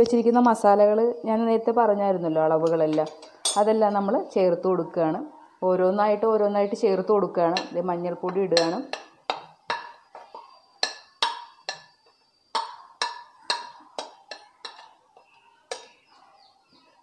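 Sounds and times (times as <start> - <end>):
steel spoon clinking on dishes: 2.6 - 3.8, 7.5 - 12.0, 12.6 - 16.1.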